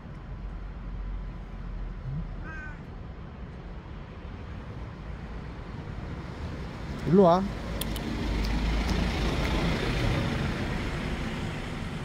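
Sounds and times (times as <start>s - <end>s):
street noise hum: 0.0s - 12.0s
cat meowing: 2.1s - 2.9s.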